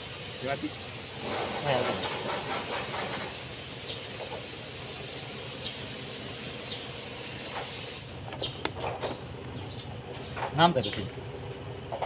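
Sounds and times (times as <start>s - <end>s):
steady hissing: 0.0s - 8.3s.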